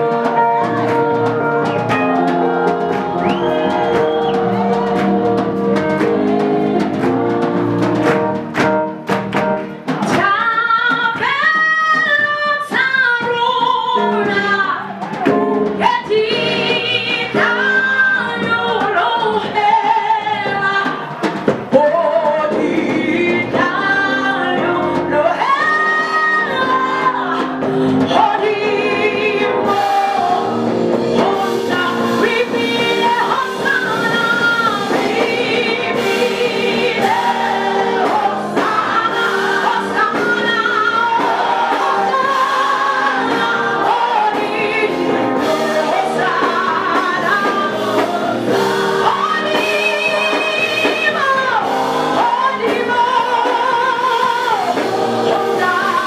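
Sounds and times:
drum hits: 0:00.0 - 0:13.0, 0:29.7 - 0:56.0
keyboard chords: 0:00.0 - 0:21.1, 0:21.8 - 0:56.0
woman singing into microphone: 0:10.0 - 0:56.0.

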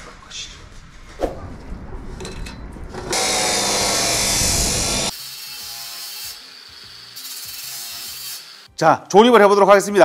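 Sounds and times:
cut-off saw cutting steel: 0:03.1 - 0:08.7.

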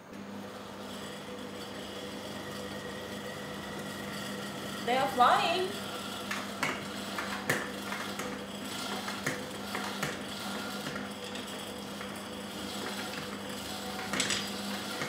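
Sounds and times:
utensils knocking and clinking: 0:14.0 - 0:14.6.

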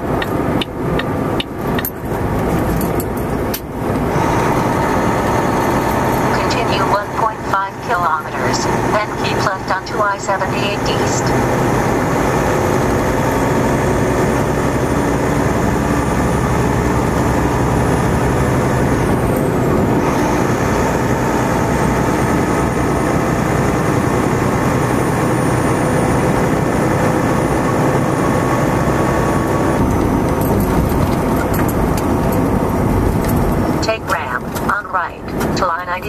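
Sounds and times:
road noise: 0:00.0 - 0:36.0
truck engine drone: 0:00.0 - 0:36.0.

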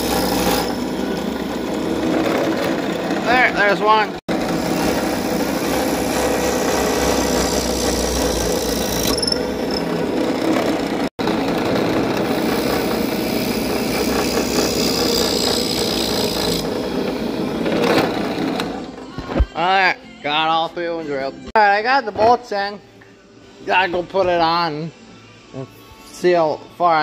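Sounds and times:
drill press boring wood: 0:00.0 - 0:18.9.

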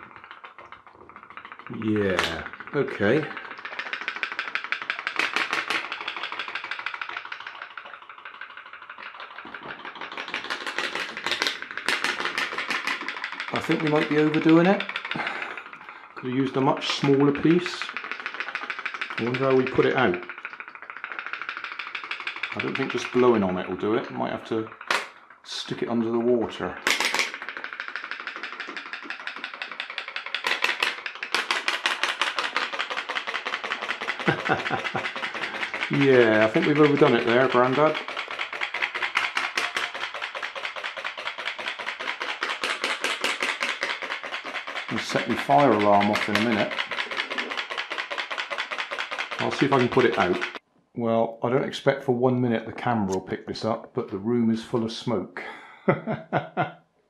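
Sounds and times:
pop-pop boat rapid ticking: 0:00.0 - 0:25.3, 0:26.0 - 0:50.6
pop-pop boat engine popping: 0:26.7 - 0:50.6.

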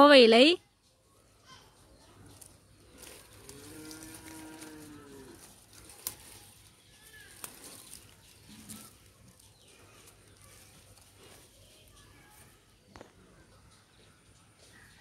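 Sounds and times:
cow mooing faintly: 0:03.4 - 0:05.6.

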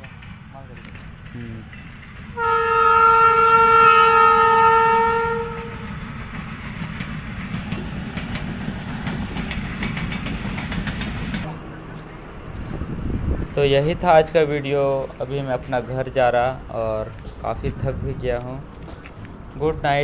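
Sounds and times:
train wheels clattering: 0:00.0 - 0:03.6, 0:04.6 - 0:11.5
train horn blast: 0:02.3 - 0:06.0.

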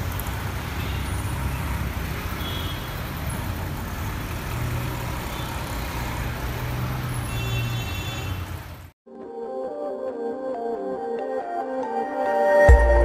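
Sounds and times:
street traffic noise: 0:00.0 - 0:09.0.

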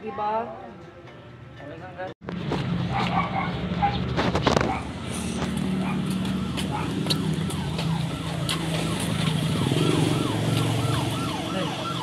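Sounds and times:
siren in falling sweeps: 0:06.1 - 0:12.0.

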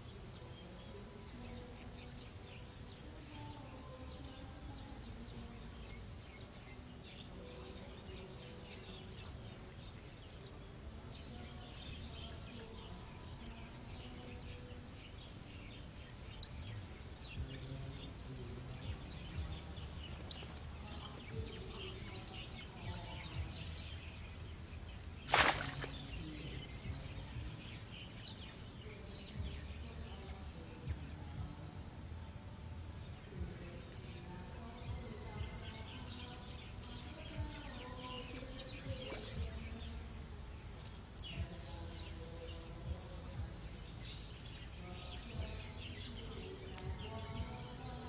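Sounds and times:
faint bird chirps: 0:00.0 - 0:32.0, 0:32.8 - 0:48.0.

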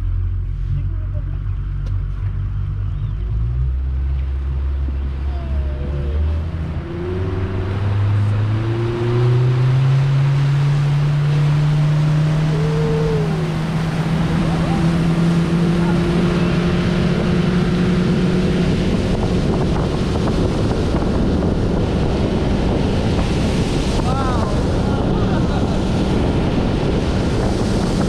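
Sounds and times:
outboard motor revving: 0:00.0 - 0:28.0
water rushing past hull: 0:03.3 - 0:28.0.

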